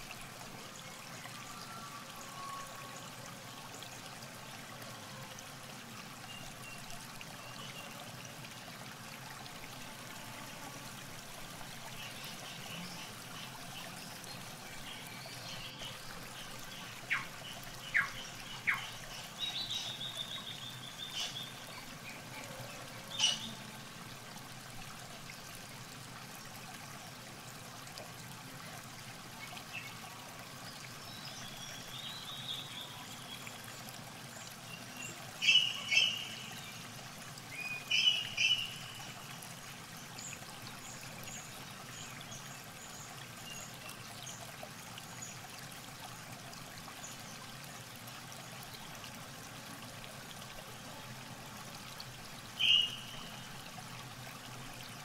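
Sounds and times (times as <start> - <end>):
river water flowing: 0.0 - 55.0
small birds chirping: 52.6 - 53.5.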